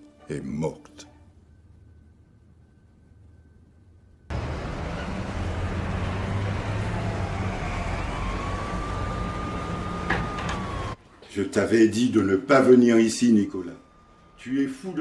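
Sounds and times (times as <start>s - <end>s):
distant siren wailing: 2.0s - 11.0s, 11.8s - 15.0s
traffic noise: 4.3s - 15.0s.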